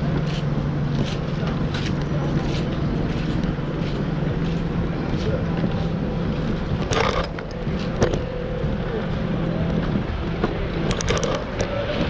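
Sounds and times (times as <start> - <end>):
city street traffic: 0.0 - 12.0
trolleybus hum: 0.0 - 12.0
sharp clicks and rattles: 6.4 - 8.7, 10.4 - 12.0.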